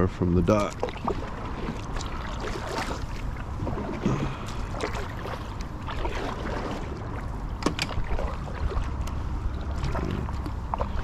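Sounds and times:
low steady rumble: 0.0s - 11.0s
paddle splashing in water: 0.5s - 11.0s.

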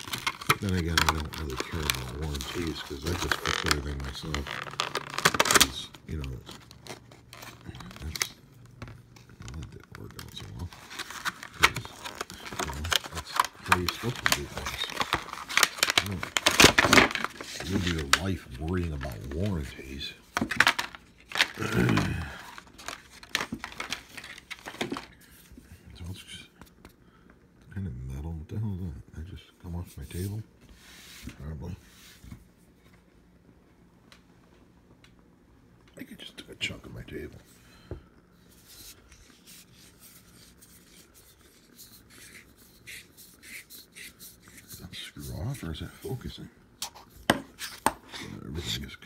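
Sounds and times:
plastic packaging crinkling: 0.0s - 25.3s.

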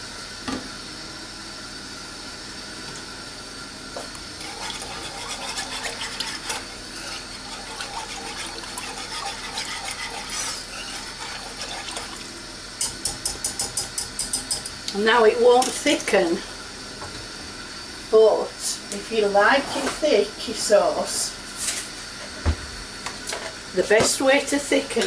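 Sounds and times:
sauce simmering and bubbling: 4.2s - 12.8s
whisk beating sauce: 4.2s - 14.6s
whisk clinking against pan: 4.4s - 12.1s, 12.8s - 14.7s.

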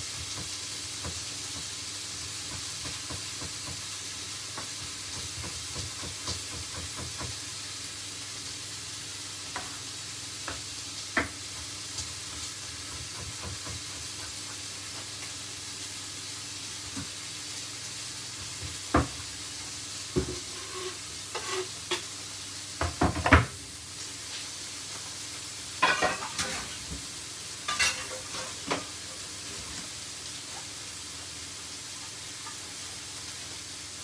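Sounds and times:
steaks sizzling in a frying pan: 0.0s - 34.0s
kitchen knocks and clatters: 4.6s - 7.4s, 22.8s - 23.6s, 25.8s - 27.1s, 27.7s - 29.0s.

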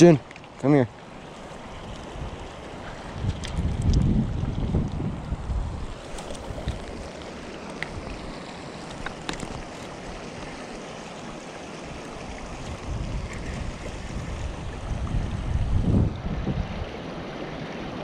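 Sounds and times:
wind buffeting microphone: 1.5s - 10.5s, 12.2s - 17.2s
river flowing over rocks: 5.6s - 15.8s, 16.7s - 18.0s.

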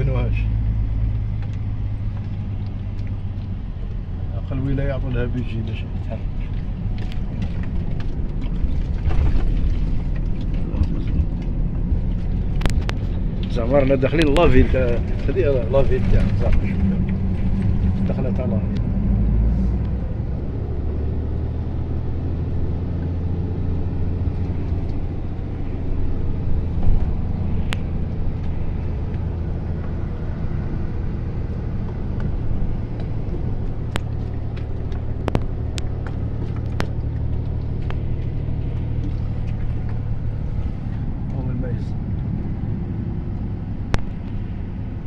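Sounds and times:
vehicle engine and road noise: 0.0s - 45.0s.

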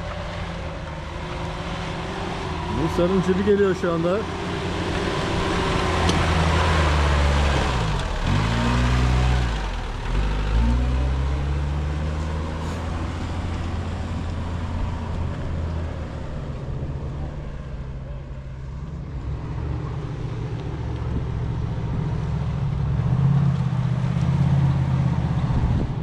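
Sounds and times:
off-road vehicle engine climbing: 0.0s - 26.0s.

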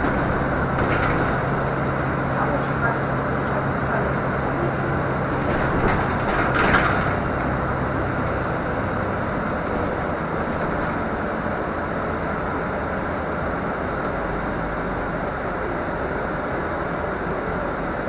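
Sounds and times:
short rattling clatter: 0.0s - 1.9s, 5.2s - 7.7s
bus engine and road noise: 0.0s - 18.0s.

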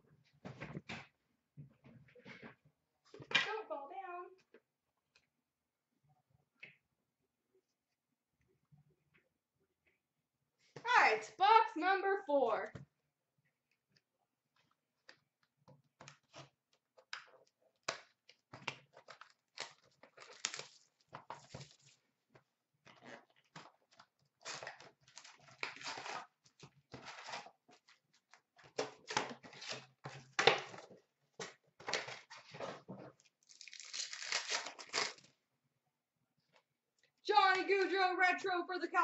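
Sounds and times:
card pack wrappers ripping: 19.0s - 20.9s, 33.4s - 35.3s.

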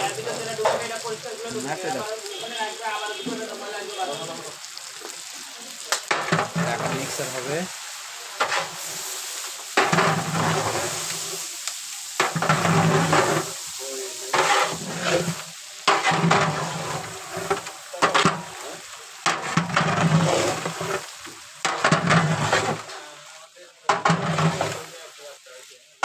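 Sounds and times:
prawns frying in oil: 0.0s - 26.0s
metal spatula scraping pot: 6.1s - 7.5s, 8.4s - 8.9s, 9.8s - 11.2s, 12.2s - 13.6s, 14.3s - 23.0s, 23.9s - 24.9s.

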